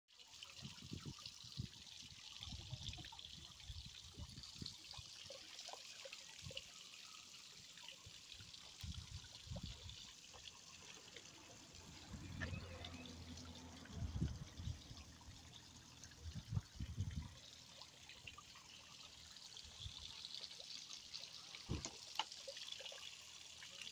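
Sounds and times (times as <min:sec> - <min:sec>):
water splashing onto metal grate: 0:21.5 - 0:23.0.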